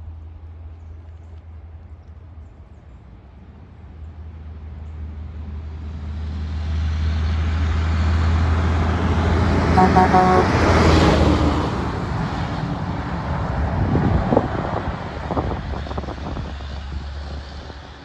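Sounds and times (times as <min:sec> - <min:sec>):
truck engine drone passing: 0:06.2 - 0:13.6
truck horn toot: 0:09.7 - 0:11.3.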